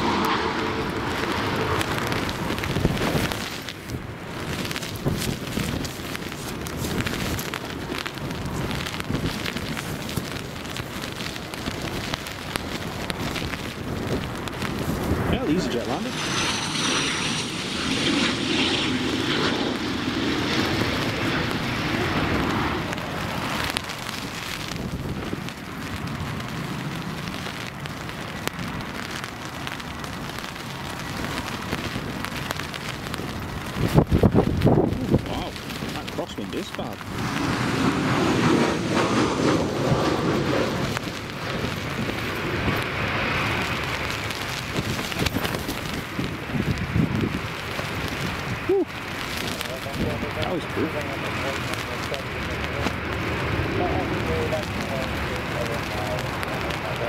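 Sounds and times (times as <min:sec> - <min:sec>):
high thin whine: 0:00.0 - 0:04.9, 0:14.5 - 0:24.3
jet engines rushing: 0:00.0 - 0:27.7, 0:30.4 - 0:57.0
wind buffeting microphone: 0:00.0 - 0:57.0.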